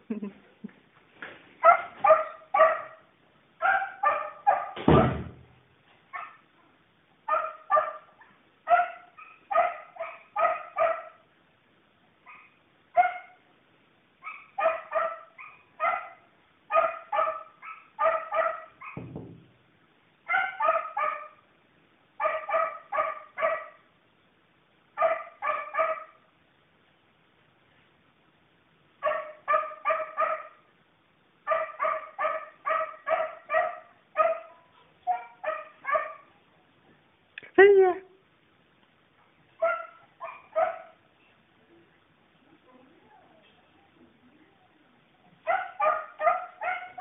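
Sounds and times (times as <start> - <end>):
dog barking: 1.6 - 5.1, 6.1 - 6.4, 7.3 - 11.3, 12.3 - 13.4, 14.2 - 19.1, 20.3 - 21.4, 22.2 - 23.9, 25.0 - 26.2, 29.0 - 30.7, 31.5 - 36.3, 39.6 - 41.1, 45.4 - 47.0.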